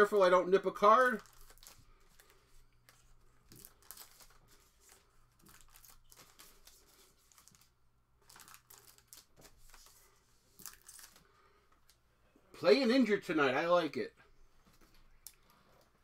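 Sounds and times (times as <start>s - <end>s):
plastic wrappers crinkling: 0.8s - 12.0s.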